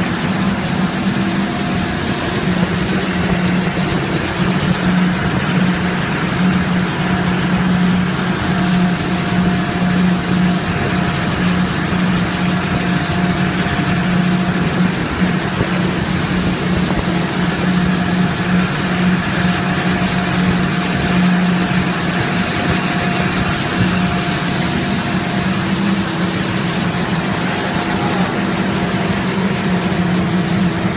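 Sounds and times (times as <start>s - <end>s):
machine drone with low hum: 0.0s - 30.9s
faint higher machine tone: 22.4s - 30.8s.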